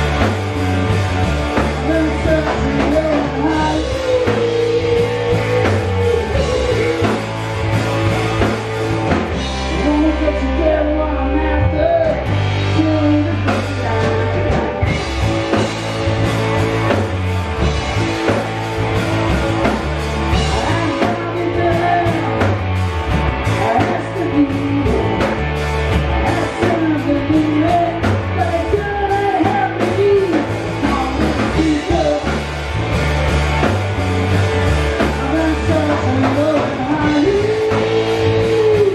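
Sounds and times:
drum kit: 0:00.0 - 0:38.9
electric guitars: 0:00.0 - 0:38.9
man singing: 0:01.6 - 0:07.8, 0:09.3 - 0:14.9, 0:20.3 - 0:22.7, 0:23.4 - 0:25.5, 0:26.1 - 0:32.5, 0:35.0 - 0:38.9.

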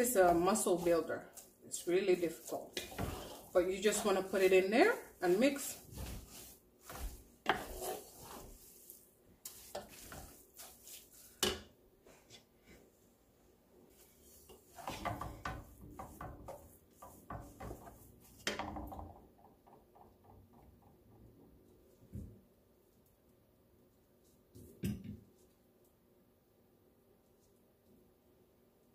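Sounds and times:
wooden spatula scraping metal pot: 0:00.0 - 0:12.8, 0:13.9 - 0:19.0.

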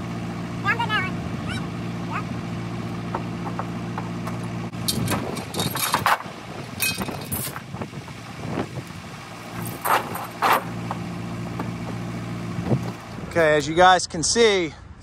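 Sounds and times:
backhoe engine idling: 0:00.0 - 0:13.8
steel chain clinking and rattling: 0:04.8 - 0:07.6.

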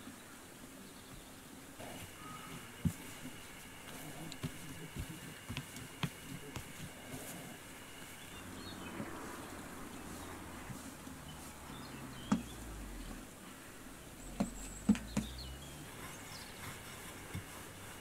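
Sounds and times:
faint birdsong: 0:00.0 - 0:18.0.

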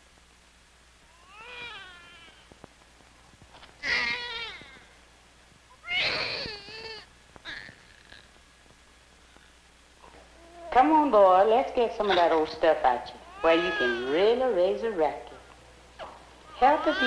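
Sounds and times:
newborn baby crying: 0:01.1 - 0:02.5, 0:03.8 - 0:05.0, 0:05.8 - 0:08.3, 0:10.0 - 0:10.8, 0:12.0 - 0:14.4, 0:16.5 - 0:17.0.

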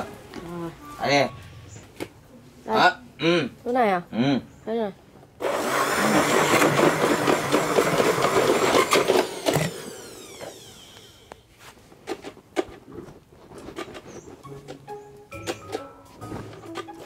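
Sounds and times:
blender motor rattling: 0:05.4 - 0:11.4.

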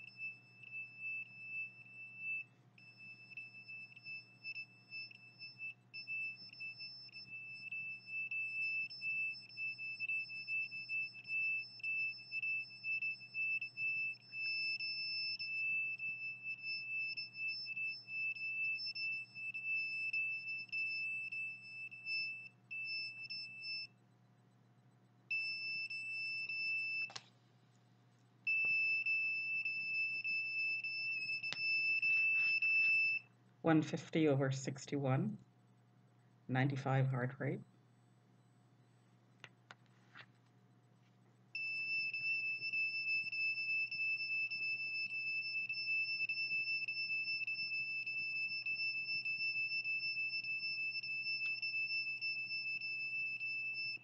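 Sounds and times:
high-pitched alarm beep: 0:00.0 - 0:24.0, 0:25.3 - 0:27.2, 0:28.5 - 0:33.3, 0:41.6 - 0:54.0.

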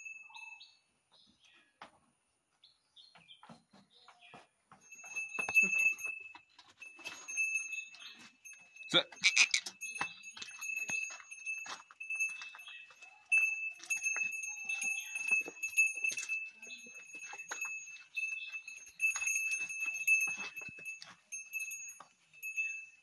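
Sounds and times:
cattle bell clanking: 0:04.7 - 0:23.0.

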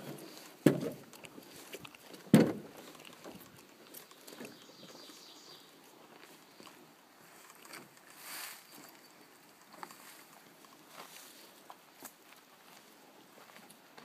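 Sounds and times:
faint scuffs and rustles: 0:06.0 - 0:13.7.

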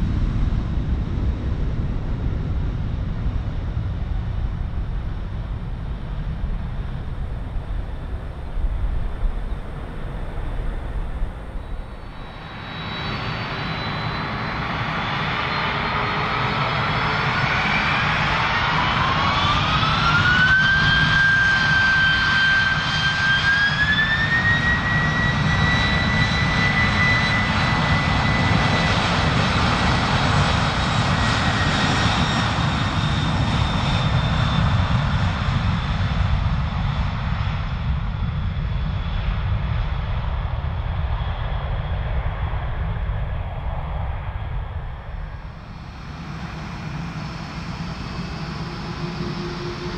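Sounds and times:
low rumble: 0:00.0 - 0:13.7, 0:39.6 - 0:49.9
jet engines spooling up: 0:06.1 - 0:37.9, 0:38.9 - 0:49.9.

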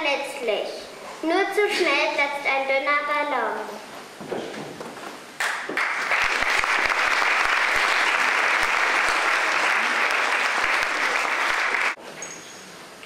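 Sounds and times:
audience applause: 0:05.4 - 0:12.0.

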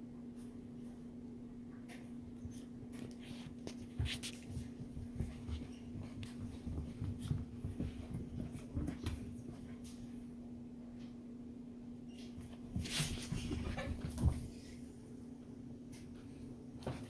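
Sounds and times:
steady low hum: 0:00.0 - 0:17.0
puppies scuffling and scratching: 0:01.8 - 0:10.3, 0:12.1 - 0:14.8
soft thumps of bodies: 0:03.9 - 0:09.6.

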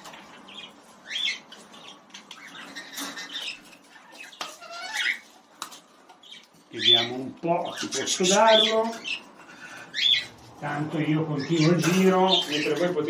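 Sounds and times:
parrots squawking and chirping: 0:00.0 - 0:13.0.

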